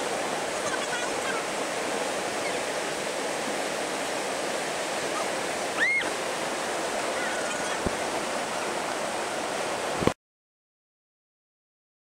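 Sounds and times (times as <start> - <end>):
whitewater rapid rushing: 0.0 - 10.2.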